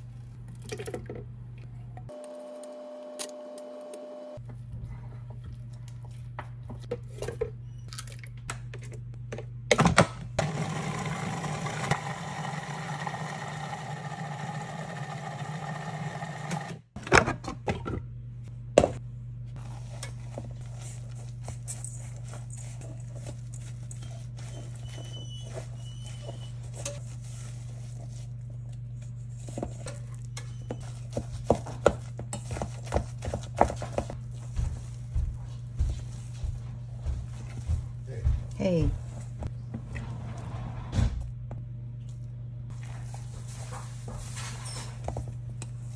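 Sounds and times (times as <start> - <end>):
food processor running: 2.1 - 4.4, 10.4 - 17.0.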